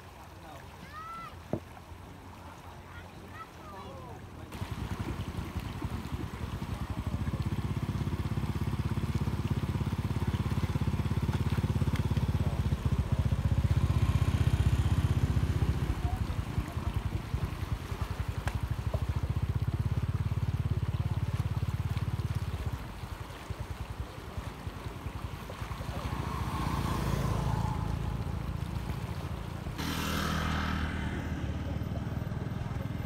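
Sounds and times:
faint trickling water: 0.0 - 29.8
motorbike engine idling: 4.6 - 17.8.

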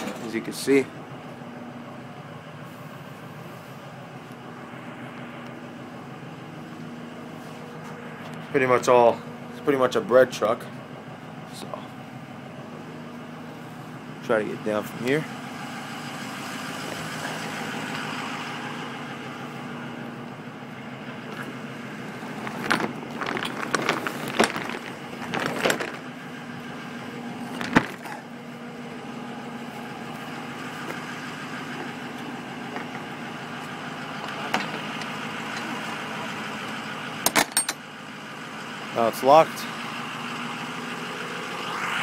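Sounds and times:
metal clanks and rattles: 0.0 - 0.6, 22.2 - 26.2, 27.4 - 28.3, 34.2 - 35.8, 37.3 - 37.8
diesel engine idling: 0.0 - 42.0.

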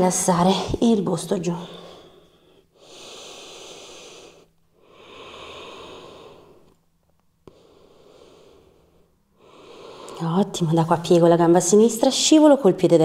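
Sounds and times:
person breathing slowly and deeply: 1.8 - 6.8, 7.4 - 10.2.

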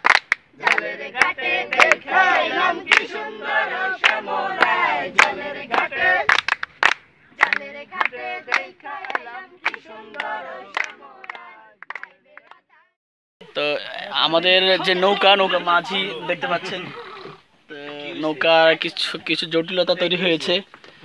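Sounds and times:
hand claps: 0.0 - 2.0, 2.9 - 3.1, 4.0 - 12.6
men singing together: 0.6 - 6.3, 7.4 - 11.8.

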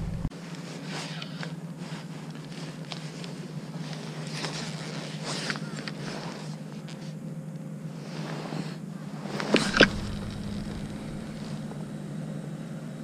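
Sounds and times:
low engine hum: 0.0 - 0.8, 8.8 - 13.0.

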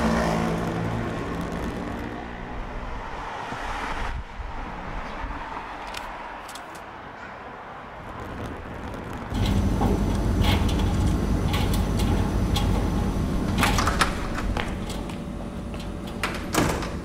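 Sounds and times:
faint street noise: 0.0 - 16.3
door clattering: 9.3 - 15.1, 15.8 - 17.0
washing machines humming: 9.3 - 17.0.

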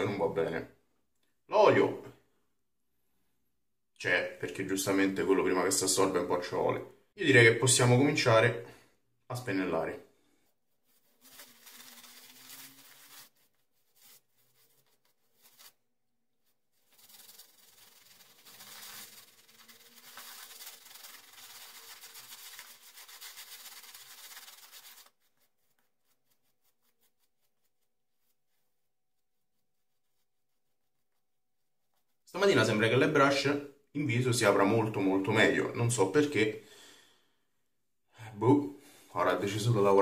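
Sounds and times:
shaving brush rubbing on face: 10.5 - 15.8, 16.4 - 32.2.

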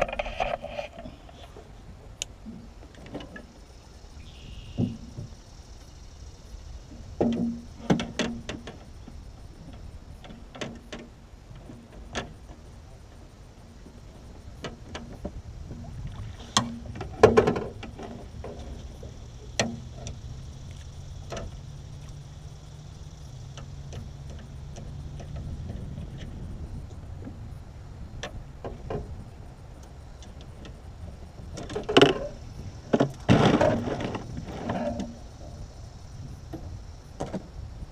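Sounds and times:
low steady hum: 0.0 - 37.9
knocks and clatter on boat deck: 4.7 - 5.4, 6.9 - 12.7, 13.8 - 20.2, 21.2 - 21.6, 23.6 - 27.5, 28.2 - 29.4, 30.2 - 35.6, 36.4 - 37.5.

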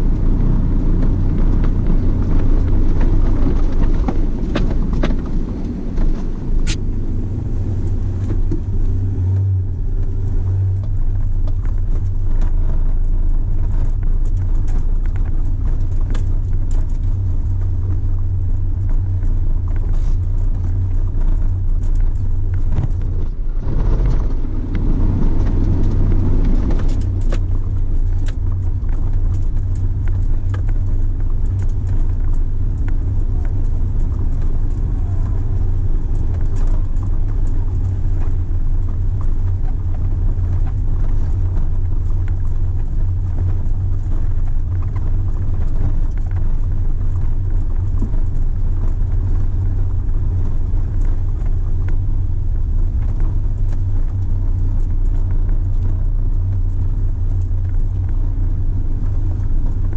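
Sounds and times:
engine and tyre rumble: 0.0 - 59.9.

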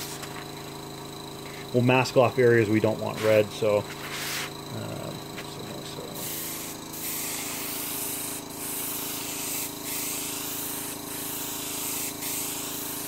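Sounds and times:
steady low hum: 0.0 - 13.0
airbrush spraying hiss: 3.1 - 4.5, 6.0 - 13.0.

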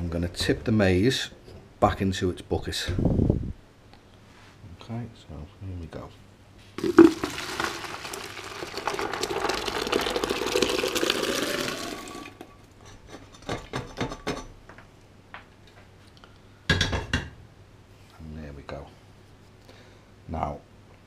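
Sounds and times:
water pouring into a bucket: 6.8 - 12.5
pan knocking and rattling: 6.8 - 14.6.

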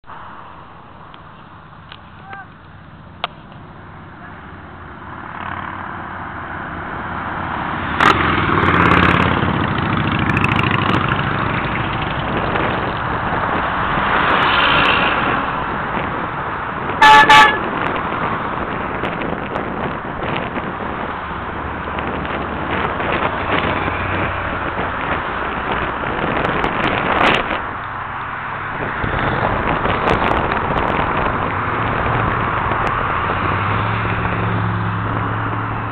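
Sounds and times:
motorcycles and cars passing: 0.0 - 35.9
vehicle horn honking: 17.0 - 17.7.

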